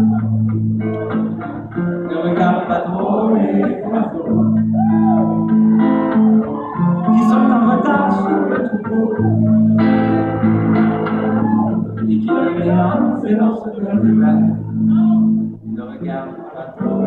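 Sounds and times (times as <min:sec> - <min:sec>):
bass line: 0:00.0 - 0:01.8, 0:04.2 - 0:13.2, 0:14.0 - 0:15.9
electric guitar: 0:00.0 - 0:17.0
live band music: 0:04.4 - 0:12.8.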